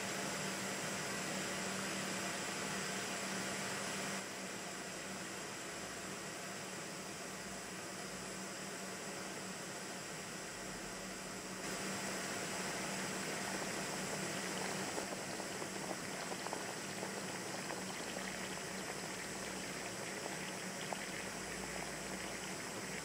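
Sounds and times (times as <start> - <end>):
blow torch flame hissing: 11.6 - 23.0
water boiling and bubbling: 11.6 - 23.0.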